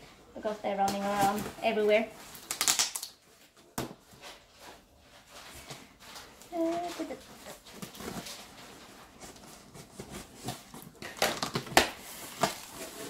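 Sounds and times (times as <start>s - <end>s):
tape ripping: 2.3s - 3.2s
cardboard scratching and crinkling: 6.2s - 13.0s.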